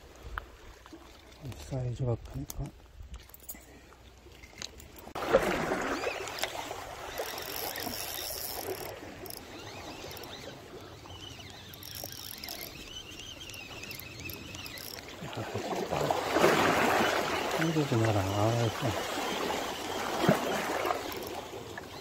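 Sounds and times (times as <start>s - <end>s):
fishing reel drag buzzing: 5.9s - 15.2s, 17.0s - 22.0s.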